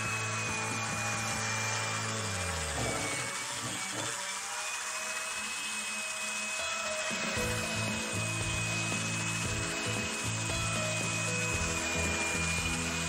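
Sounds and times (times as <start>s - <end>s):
cordless screwdriver motor whine: 0.0s - 13.0s
background music: 6.6s - 13.0s.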